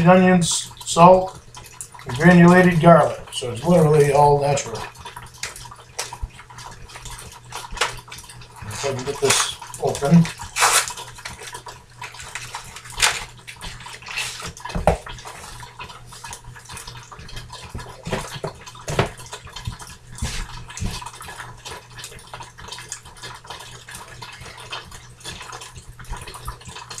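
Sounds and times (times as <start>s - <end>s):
plastic packaging crinkling: 10.2s - 14.5s.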